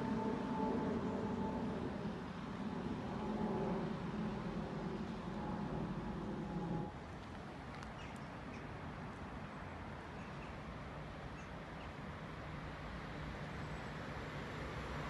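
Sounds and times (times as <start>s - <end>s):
electric train hum and whine: 0.0s - 7.5s.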